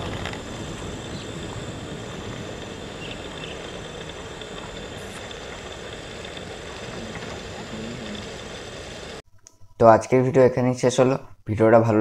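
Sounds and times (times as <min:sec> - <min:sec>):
jeep engines rumbling: 0:00.0 - 0:09.2.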